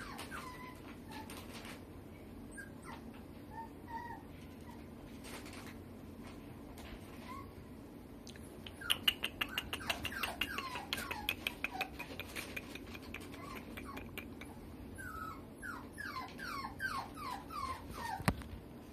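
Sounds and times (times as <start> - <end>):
puppy whimpering: 0.0 - 1.8, 2.5 - 4.9, 7.1 - 7.6, 8.7 - 18.5.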